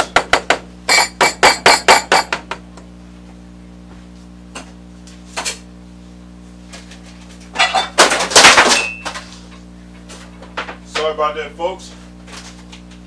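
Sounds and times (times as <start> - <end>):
utensils knocking metal pot: 0.0 - 2.5
steady low hum: 0.0 - 13.0.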